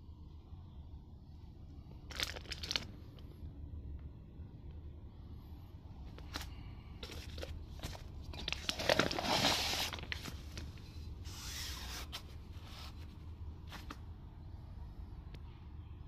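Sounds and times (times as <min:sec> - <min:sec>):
steady low hum: 0:00.0 - 0:16.0
rustling handling noise: 0:06.0 - 0:14.2.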